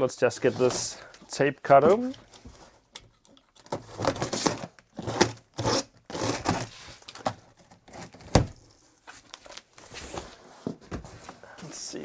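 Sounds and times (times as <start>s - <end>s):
box cutter slicing packing tape: 3.8s - 6.7s.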